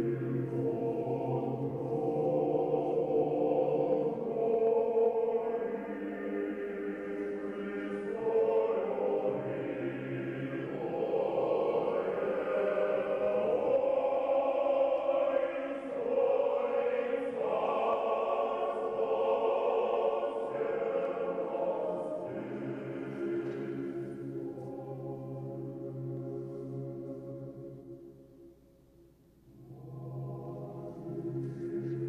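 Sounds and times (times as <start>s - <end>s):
choir-like voices holding chords: 0.0s - 28.9s, 29.5s - 32.0s.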